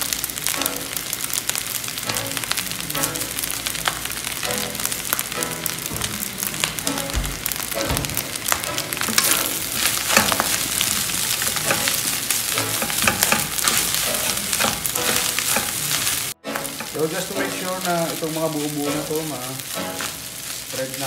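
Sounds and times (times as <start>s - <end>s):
rice sizzling in a pan: 0.0s - 21.0s
wooden spatula scraping a pan: 8.9s - 21.0s.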